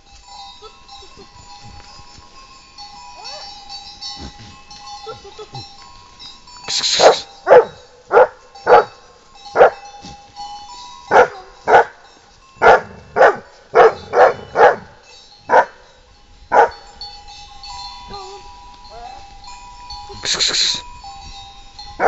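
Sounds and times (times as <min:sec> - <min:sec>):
dog barking: 0:07.0 - 0:09.0, 0:09.6 - 0:09.8, 0:11.1 - 0:12.0, 0:12.6 - 0:14.9, 0:15.5 - 0:15.8, 0:16.5 - 0:16.8.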